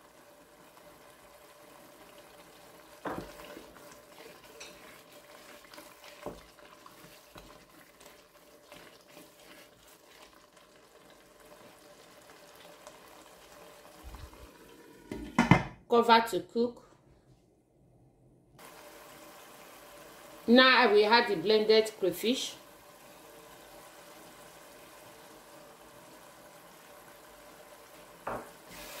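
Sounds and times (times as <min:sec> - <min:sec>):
faint sizzle in a pot: 0:00.0 - 0:16.6, 0:18.6 - 0:29.0
spoon scraping pot: 0:03.2 - 0:10.4.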